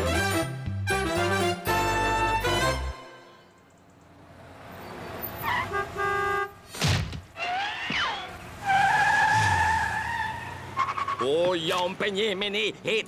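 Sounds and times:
cartoon car horn toots: 5.5 - 6.6.

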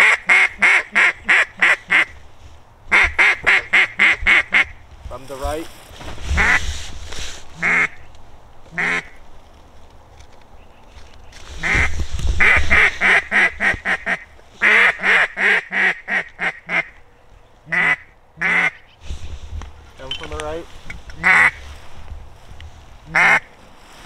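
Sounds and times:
duck call quacks: 0.0 - 2.2, 2.9 - 4.7, 6.4 - 6.6, 7.6 - 8.0, 8.7 - 9.2, 11.6 - 16.9, 17.7 - 19.0, 21.2 - 21.6, 23.1 - 23.5.

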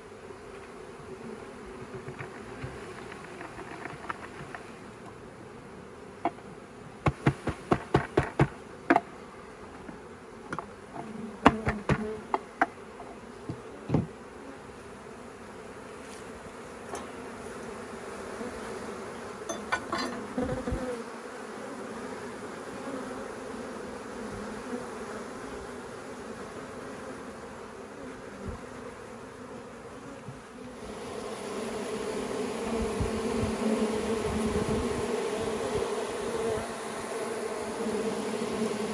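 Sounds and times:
bee swarm buzzing: 0.0 - 38.9
bucket knocking against log: 7.0 - 9.1, 11.4 - 12.8.

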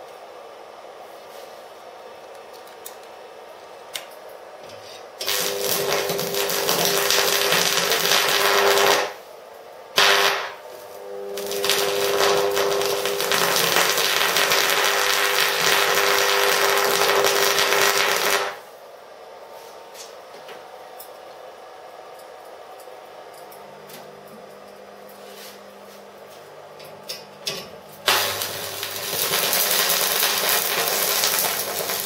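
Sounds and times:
welding arc crackling and buzzing: 5.2 - 9.3, 9.9 - 18.7, 28.0 - 32.0.

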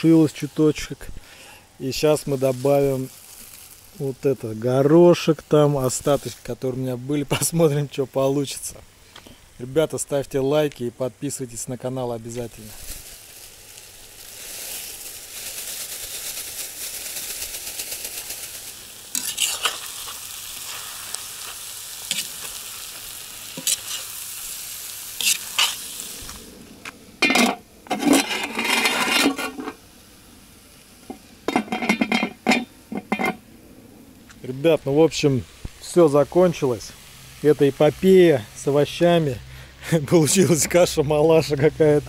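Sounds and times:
vegetables sizzling in a pot: 0.0 - 42.0
metal spatula scraping a pot: 19.1 - 20.1, 23.6 - 24.1, 25.2 - 25.8, 27.2 - 29.8, 31.5 - 33.4
pot lid clattering: 27.2 - 29.8, 31.5 - 33.4.

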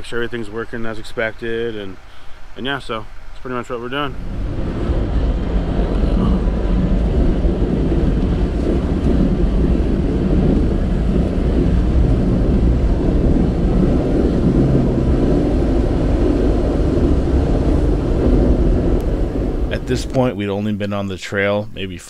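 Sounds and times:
vehicle engine and tyres rumbling: 1.7 - 20.3.

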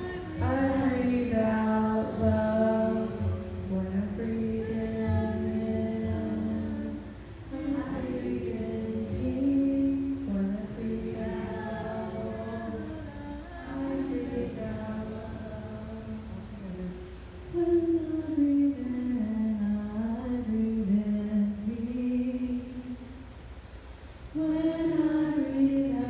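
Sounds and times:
voices singing long notes: 0.0 - 19.5.

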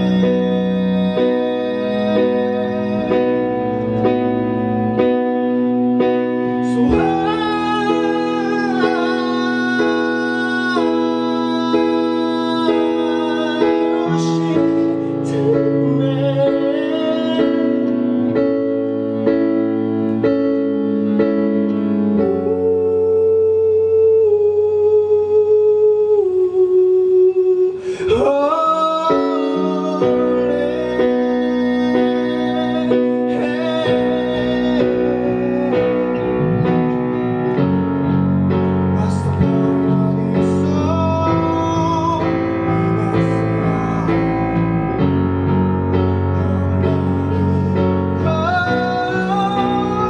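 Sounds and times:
piano chords: 0.0 - 50.0
low bass line: 29.8 - 50.0.

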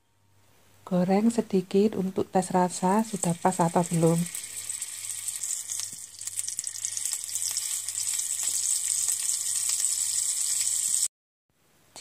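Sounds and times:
meat sizzling in hot oil: 2.7 - 11.1.

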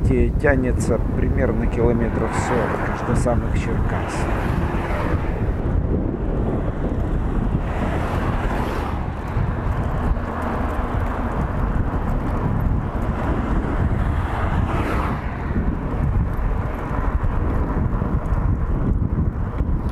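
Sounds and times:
bike tyres rumbling on asphalt: 0.0 - 19.9
cars passing: 0.0 - 19.9
wind over microphone: 0.0 - 19.9.

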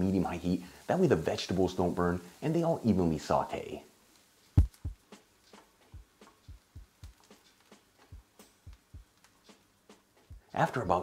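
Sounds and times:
wooden spoon knocking frying pan: 4.6 - 10.5.

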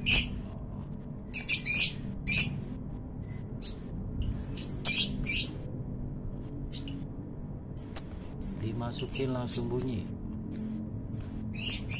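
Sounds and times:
bird chirping: 3.6 - 5.6, 7.8 - 11.9.

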